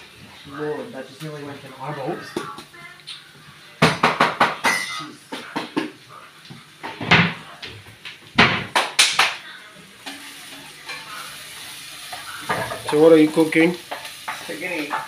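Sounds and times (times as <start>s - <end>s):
pans and tins clattering: 3.8s - 6.0s, 10.0s - 15.0s.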